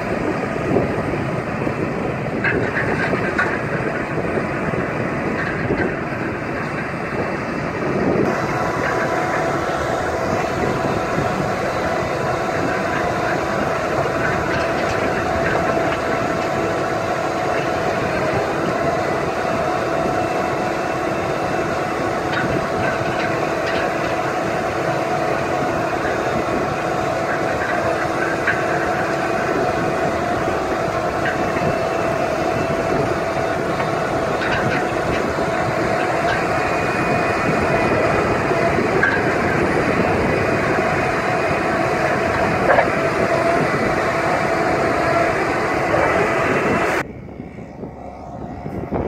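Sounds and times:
engine running: 0.0s - 49.0s
mechanical whine: 0.0s - 49.0s
rollers and conveyors rattling: 0.0s - 49.0s.

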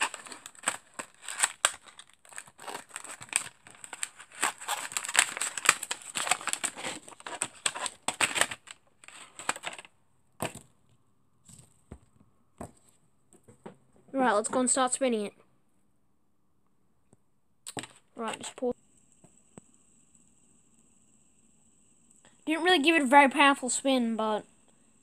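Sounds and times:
cardboard box crinkling: 0.0s - 10.6s.

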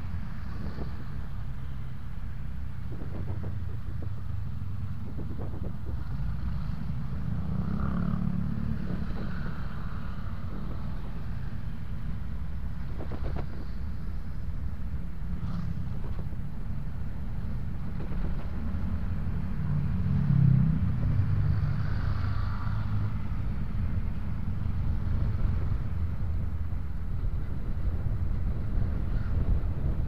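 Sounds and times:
wind and road rumble: 0.0s - 30.0s
motorcycle passing close: 6.2s - 10.9s.

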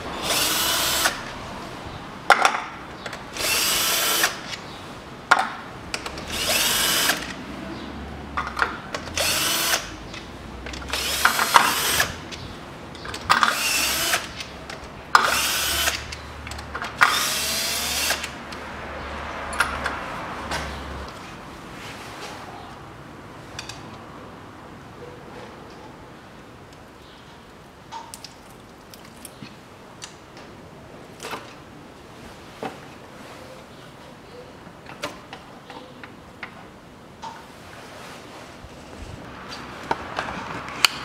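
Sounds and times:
cordless drill running: 0.2s - 1.3s, 3.3s - 4.4s, 6.3s - 7.3s, 9.2s - 9.9s, 10.9s - 12.2s, 13.5s - 14.3s, 15.2s - 16.1s, 17.0s - 18.3s.

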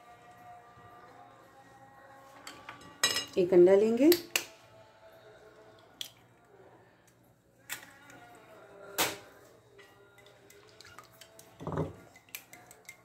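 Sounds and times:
dishes clinking: 2.4s - 3.4s, 11.5s - 13.0s.

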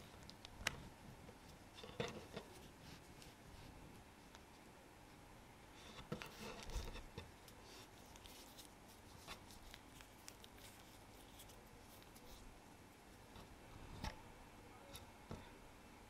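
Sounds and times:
hands handling dough: 5.9s - 14.2s.

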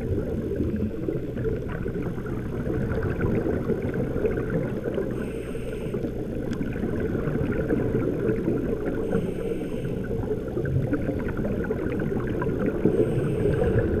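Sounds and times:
low underwater rumble: 0.0s - 14.0s
scuba regulator hiss: 9.1s - 10.0s, 12.9s - 13.9s.

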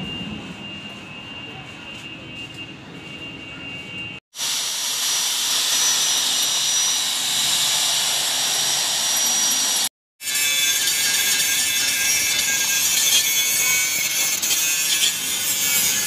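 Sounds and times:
electric drill whirring: 4.4s - 9.9s
angle grinder cutting metal: 4.4s - 16.0s.

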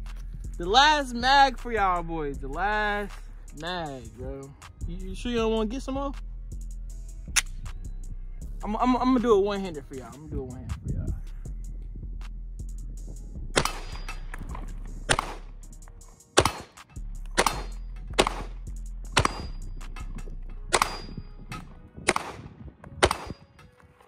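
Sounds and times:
pistol shots: 13.6s - 14.4s, 15.1s - 15.5s, 16.4s - 18.6s, 19.2s - 19.6s, 20.7s - 23.6s
metallic ring of steel targets: 13.6s - 14.5s, 17.4s - 18.5s, 19.2s - 22.2s.

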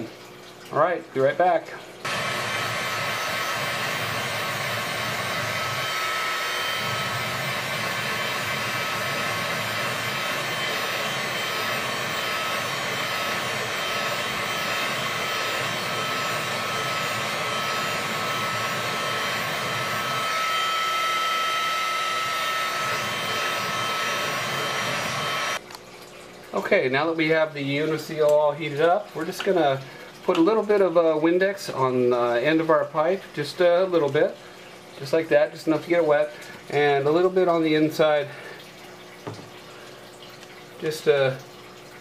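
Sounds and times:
heat gun blowing with whine: 2.1s - 25.6s.

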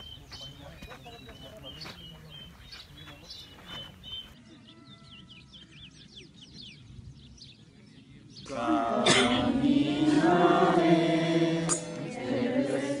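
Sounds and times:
faint bird chirps: 0.0s - 8.5s
congregation singing a hymn: 8.5s - 13.0s.

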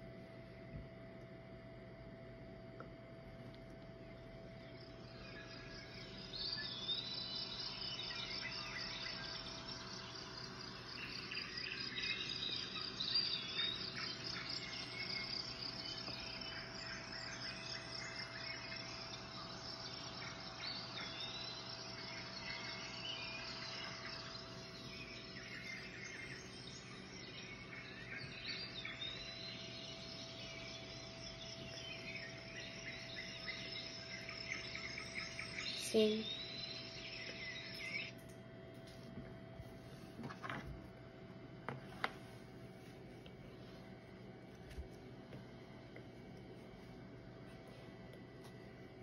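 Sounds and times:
faint steady hum: 0.0s - 49.0s
crickets chirping: 1.8s - 38.2s
bird calls: 4.6s - 38.2s.

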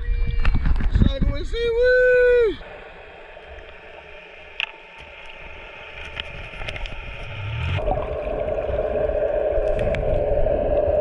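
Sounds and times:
rushing water: 2.5s - 11.0s.

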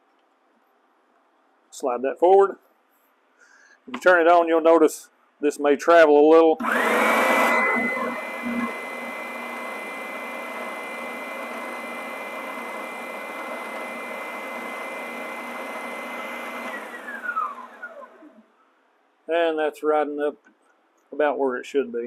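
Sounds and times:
belt sander motor whining: 6.6s - 18.4s.

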